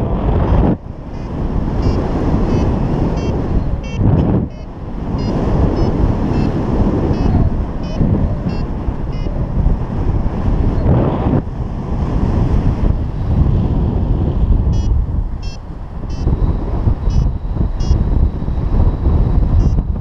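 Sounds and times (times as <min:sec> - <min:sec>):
wind on microphone: 0:00.0 - 0:20.0
variometer high beeps: 0:00.5 - 0:09.4, 0:14.7 - 0:16.3, 0:17.1 - 0:18.0.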